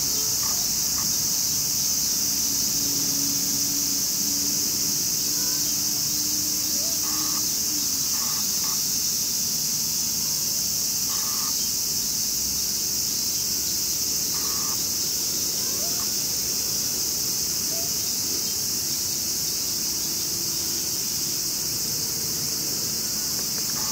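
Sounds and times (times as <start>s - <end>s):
insects chorus in grass: 0.0s - 23.9s.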